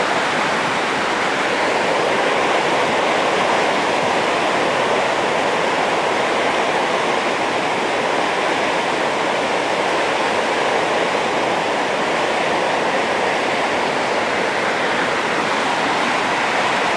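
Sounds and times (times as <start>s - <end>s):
waterfall rushing: 0.0s - 16.9s.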